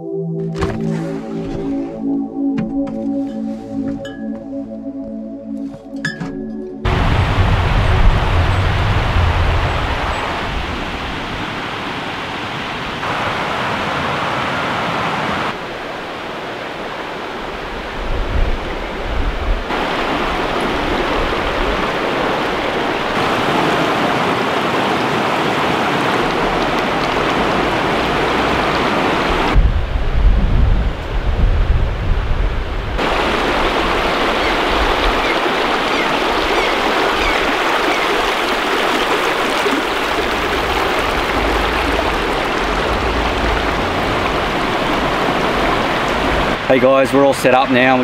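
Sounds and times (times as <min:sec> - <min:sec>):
wind buffeting microphone: 0:06.9 - 0:11.8, 0:17.4 - 0:46.7
water rushing over rocks: 0:06.9 - 0:29.8, 0:33.0 - 0:48.0.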